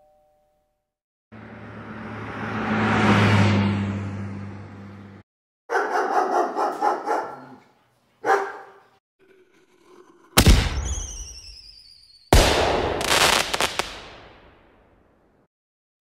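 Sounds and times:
dog barking: 5.7 - 9.0
loud firework bangs: 10.4 - 11.7, 12.3 - 14.7
firework crackling: 10.4 - 14.5
falling whistle: 10.8 - 12.3.

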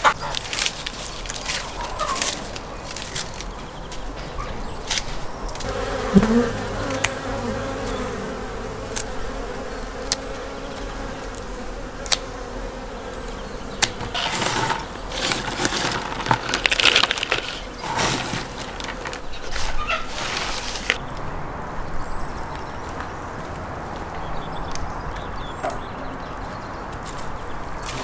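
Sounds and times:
pruning shears snipping twigs: 0.0 - 3.6, 12.0 - 12.3
twigs rustling into plastic bucket: 0.1 - 3.6, 14.1 - 21.0
honeybees buzzing: 5.5 - 19.5.

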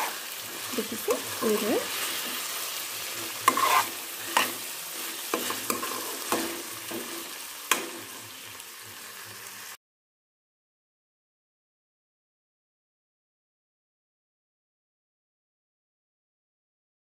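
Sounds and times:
metal ladle scraping a pan: 0.0 - 8.5
curry sizzling in a pan: 0.0 - 9.8.

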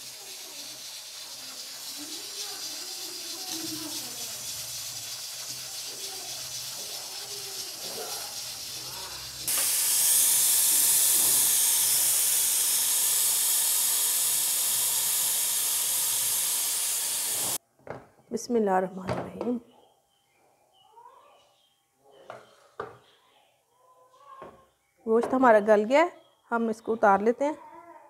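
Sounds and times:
pressure cooker hissing steam: 0.0 - 17.6
loud high rush of steam: 8.9 - 17.6.

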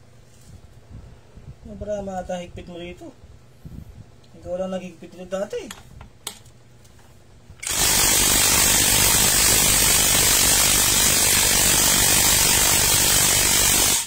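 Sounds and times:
cordless impact wrench hammering: 7.6 - 14.0.

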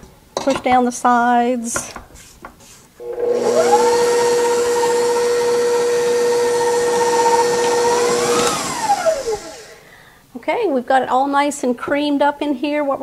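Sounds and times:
electric stand mixer running: 3.0 - 9.9
motor rising whine: 3.0 - 9.9.

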